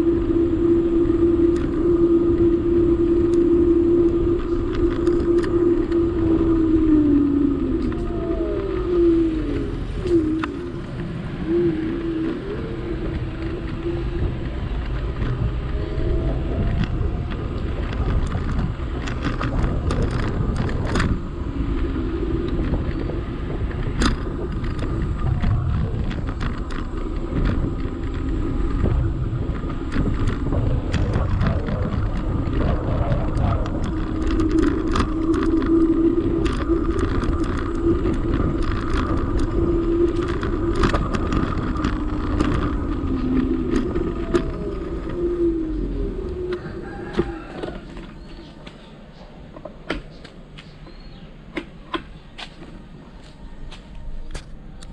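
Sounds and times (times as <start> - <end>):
wavering whine: 0.0 - 54.9
wind and road rumble: 0.0 - 54.9
rattles and knocks over bumps: 13.1 - 48.8.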